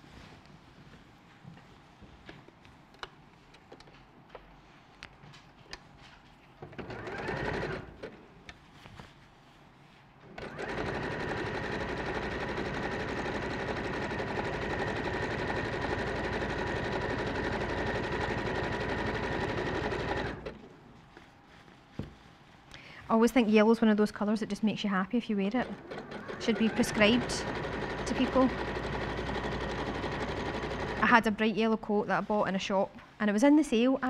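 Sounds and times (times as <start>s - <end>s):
sewing machine stitching: 6.7s - 8.1s, 10.4s - 20.6s, 25.6s - 31.2s.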